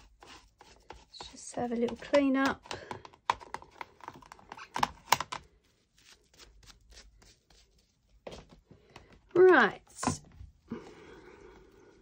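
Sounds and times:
soft rubbing strokes: 5.5s - 8.3s.

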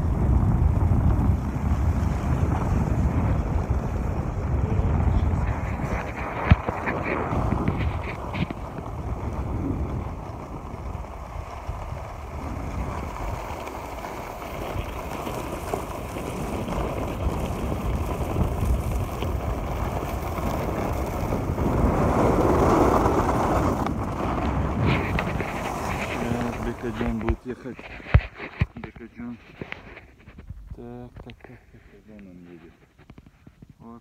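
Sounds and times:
wind over microphone: 0.0s - 34.0s
skis scraping on snow: 0.1s - 33.1s.

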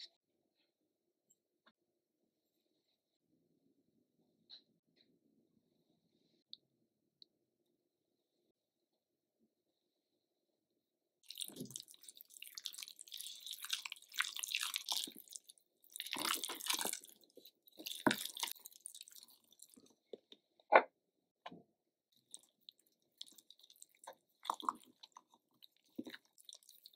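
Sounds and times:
spatula squelching and scraping paste: 11.2s - 20.3s, 22.2s - 26.9s.

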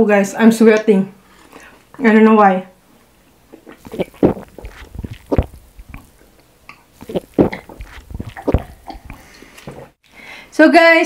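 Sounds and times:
people gulping water: 3.5s - 10.0s.

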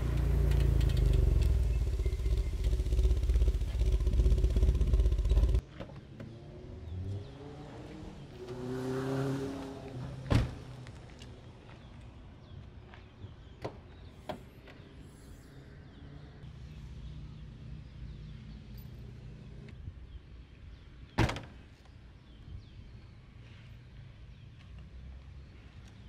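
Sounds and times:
low rumble: 0.0s - 5.6s.

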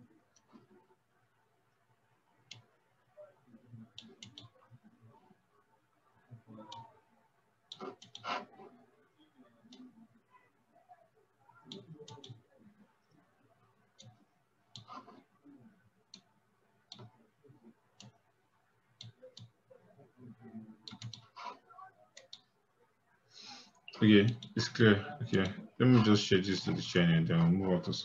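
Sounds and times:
computer mouse clicks: 3.9s - 4.6s, 7.7s - 8.5s, 11.7s - 12.4s, 16.9s - 17.1s, 20.8s - 21.4s, 22.2s - 22.5s.

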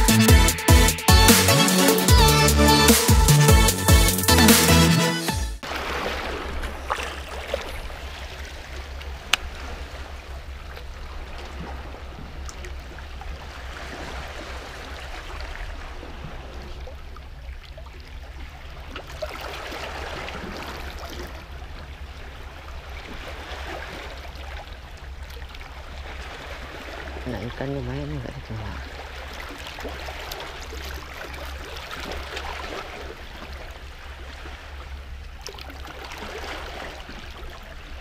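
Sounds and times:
sea water lapping: 1.4s - 38.0s.

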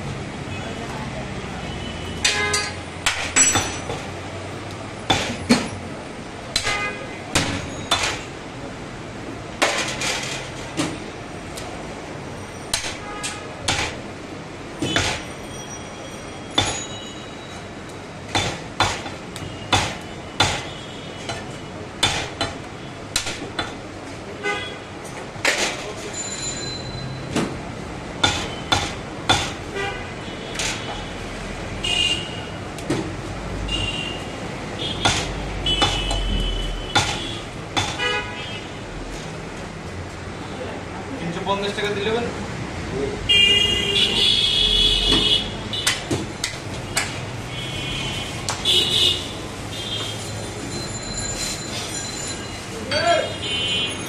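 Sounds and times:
cleaver chopping on wooden block: 18.3s - 20.7s, 35.0s - 36.2s.

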